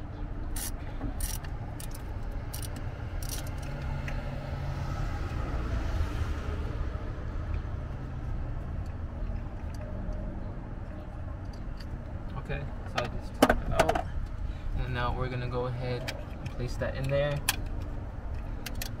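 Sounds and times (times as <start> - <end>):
wrench clicking on bolt: 0.6 - 3.7.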